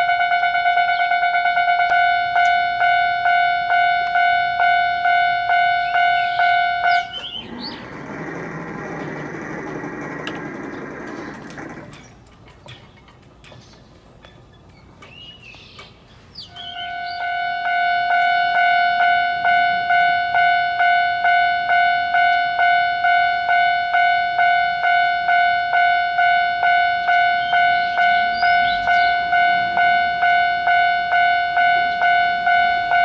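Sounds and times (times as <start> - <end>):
level-crossing alarm bell ringing: 0.0 - 11.9, 16.6 - 33.0
rushing noise: 7.2 - 12.0.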